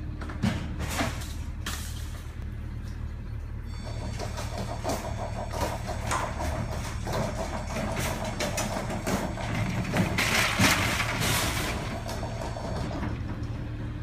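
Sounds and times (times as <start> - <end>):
low machinery hum: 0.0 - 14.0
metal shopping cart clattering: 5.7 - 12.4.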